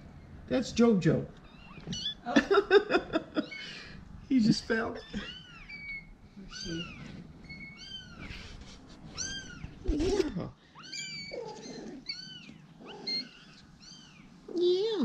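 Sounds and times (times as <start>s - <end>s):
kittens mewing: 1.4s - 2.6s, 4.6s - 15.0s.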